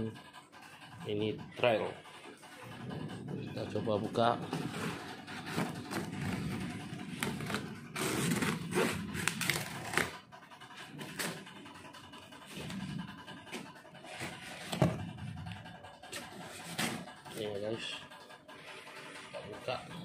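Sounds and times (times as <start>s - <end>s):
plastic wrap and cardboard tearing: 8.0s - 10.2s.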